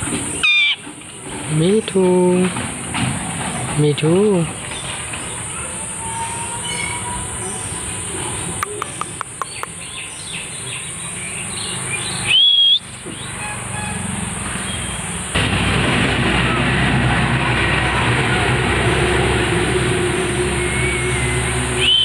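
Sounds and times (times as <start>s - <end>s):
high insect drone: 4.1s - 15.4s
sharp clicks: 8.6s - 9.8s
rushing noise: 11.9s - 22.0s
parakeet whistle: 12.2s - 13.9s, 20.6s - 22.0s.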